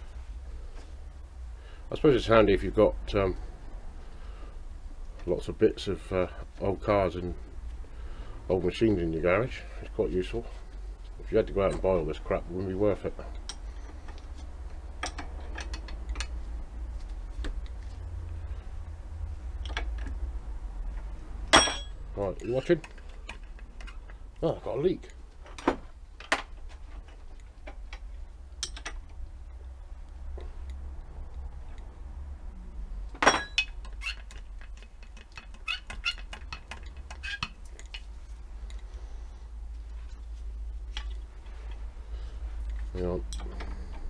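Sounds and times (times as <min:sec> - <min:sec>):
steady low hum: 0:00.0 - 0:34.6.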